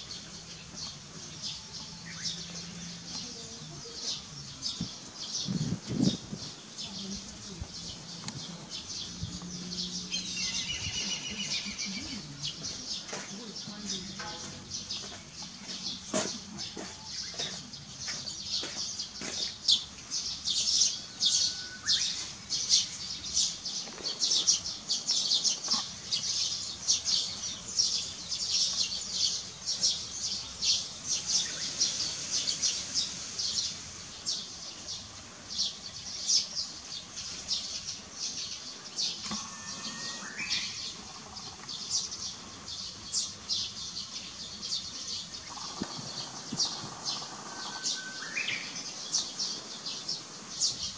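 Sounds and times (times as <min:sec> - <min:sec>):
small birds chirping: 0:00.0 - 0:50.9
whistled bird notes: 0:10.1 - 0:12.2, 0:39.4 - 0:41.0, 0:47.5 - 0:48.8.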